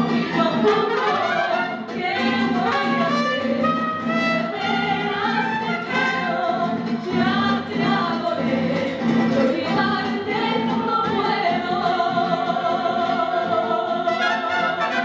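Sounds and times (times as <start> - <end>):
woman singing into a microphone: 0.0 - 3.8, 4.4 - 14.2
violins: 0.0 - 11.3
strummed guitar: 0.0 - 15.0
trumpets: 0.4 - 6.4, 14.1 - 15.0.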